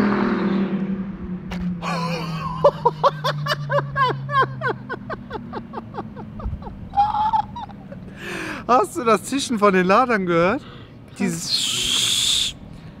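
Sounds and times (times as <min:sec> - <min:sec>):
person laughing: 0:01.8 - 0:08.1.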